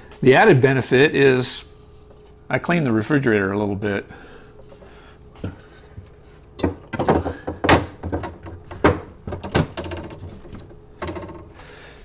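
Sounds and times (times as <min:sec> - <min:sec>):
plastic shelf knocks and clicks: 0:06.6 - 0:11.5.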